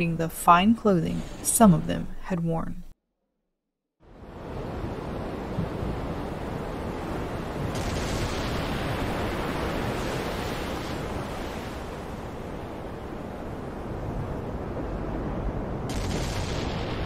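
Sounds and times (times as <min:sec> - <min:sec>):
ocean surf rushing: 0:04.0 - 0:17.0.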